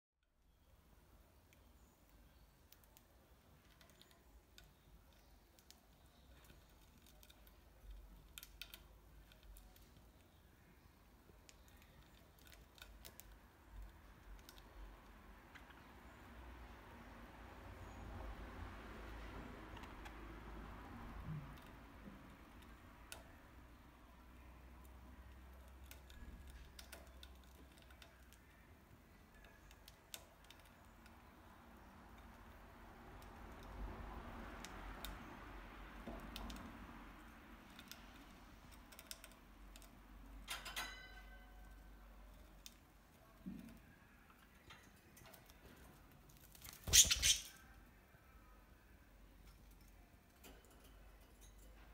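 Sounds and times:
bird beak pecking perch: 0:46.7 - 0:47.6.

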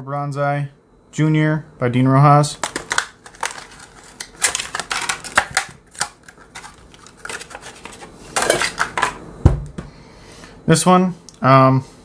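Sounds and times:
plastic packaging crackling: 0:02.6 - 0:09.2.

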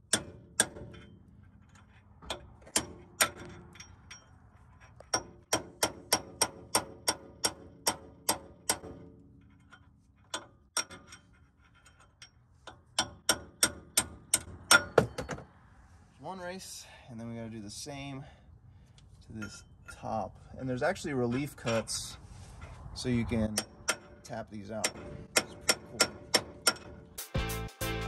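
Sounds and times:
hammer striking steel chisel: 0:05.1 - 0:09.1, 0:12.7 - 0:15.3, 0:24.8 - 0:27.0.

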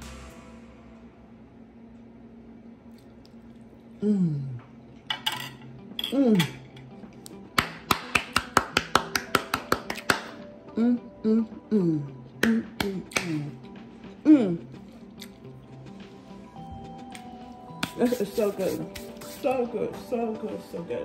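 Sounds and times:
faint background music: 0:03.9 - 0:21.0
woman humming mmm: 0:04.0 - 0:04.8, 0:10.6 - 0:15.0.

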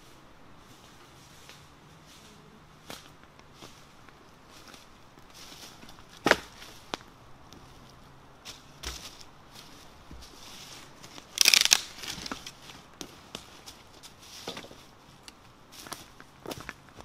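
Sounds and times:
leaves crunching: 0:00.0 - 0:16.7
dry branches cracking and snapping: 0:05.2 - 0:07.6, 0:11.0 - 0:13.8.

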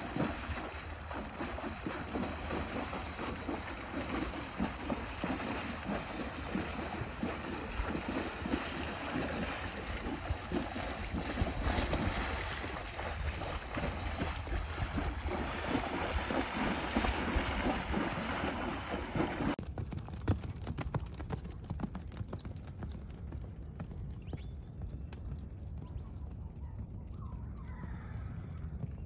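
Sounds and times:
horse splashing through water: 0:00.0 - 0:19.6
hooves galloping on dirt: 0:00.0 - 0:29.0.

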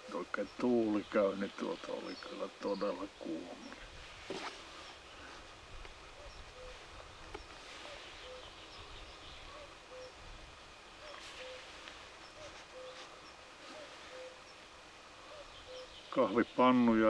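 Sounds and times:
outdoor hush: 0:00.0 - 0:17.0
cuckoo calling: 0:06.2 - 0:10.2, 0:11.0 - 0:14.6, 0:15.2 - 0:16.6
small bird chirping: 0:06.2 - 0:10.2, 0:15.2 - 0:16.8.

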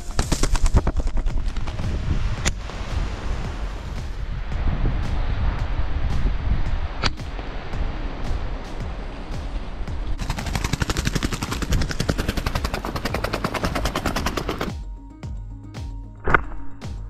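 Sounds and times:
wings fluttering against gravel: 0:00.0 - 0:02.8, 0:10.2 - 0:14.7.

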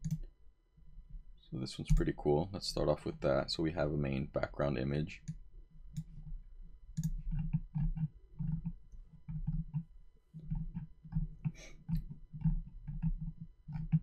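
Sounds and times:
computer mouse clicking and scrolling: 0:00.0 - 0:00.3, 0:01.6 - 0:02.8, 0:05.2 - 0:14.0.

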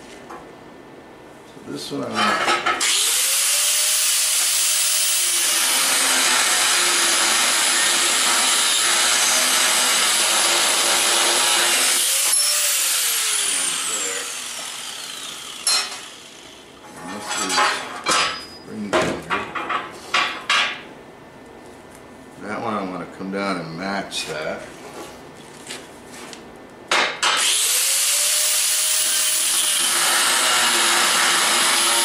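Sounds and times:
angle grinder grinding steel: 0:02.2 - 0:17.8, 0:27.4 - 0:32.0.

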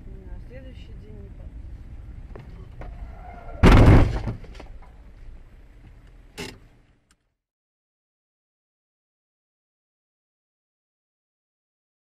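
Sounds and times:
car driving hum: 0:00.0 - 0:07.3
loud car crash: 0:02.8 - 0:04.6.

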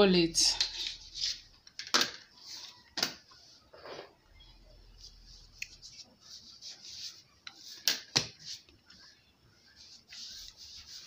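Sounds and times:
hand rubbing flour on stone: 0:09.6 - 0:11.0.

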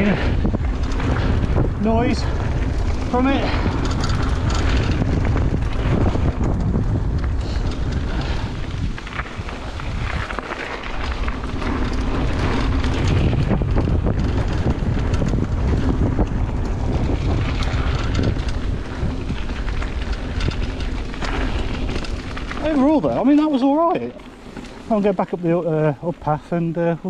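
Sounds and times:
bike tyre noise on dirt: 0:00.0 - 0:27.0
wind buffeting microphone: 0:00.0 - 0:27.0
bike frame knocks and rattles: 0:02.6 - 0:23.7.

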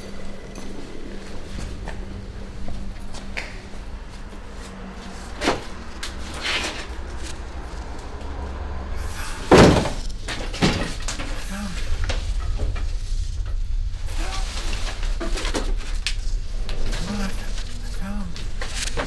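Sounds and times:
steady low hum: 0:00.0 - 0:19.0
knocks and bangs of door: 0:09.4 - 0:11.1.

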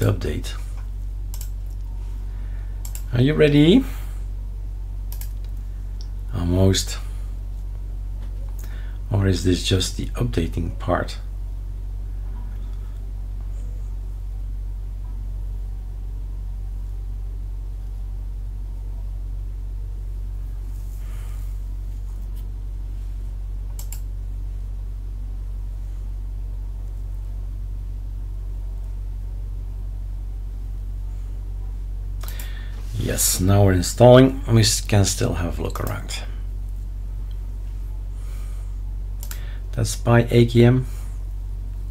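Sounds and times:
low hum: 0:00.0 - 0:41.9
faint clicks: 0:00.8 - 0:01.9, 0:02.8 - 0:03.1, 0:05.1 - 0:06.2, 0:23.7 - 0:24.1, 0:39.2 - 0:39.4.

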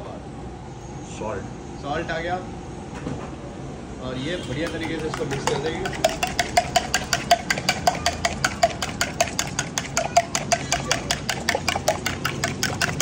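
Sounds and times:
spoon clinking in a cup: 0:04.6 - 0:13.0.

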